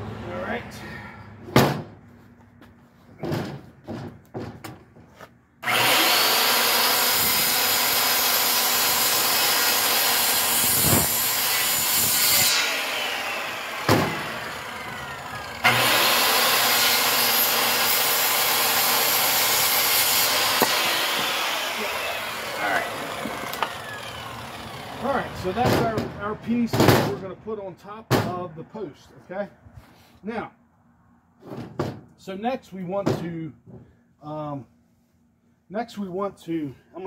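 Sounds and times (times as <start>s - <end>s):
circular saw cutting timber: 5.6s - 26.7s.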